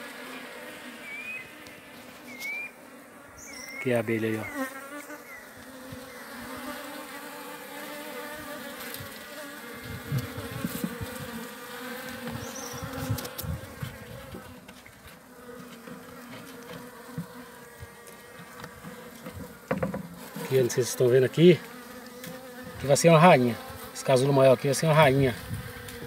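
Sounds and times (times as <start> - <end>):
honeybees buzzing: 0.0 - 26.0
hive frames thumping: 12.0 - 20.5.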